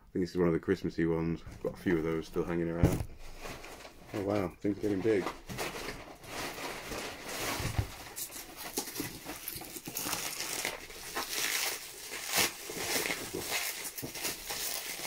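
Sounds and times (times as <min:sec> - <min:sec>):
bubble wrap crinkling: 0:02.0 - 0:15.0.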